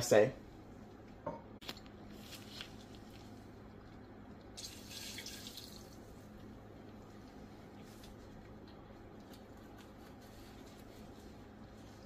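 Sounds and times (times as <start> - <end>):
liquid pouring: 4.4 - 6.2.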